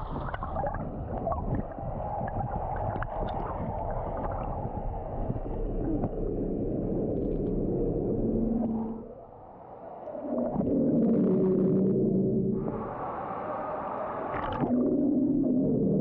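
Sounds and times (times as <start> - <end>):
bubbles gurgling: 0.0 - 9.1, 14.3 - 16.0
churning water underwater: 0.0 - 16.0.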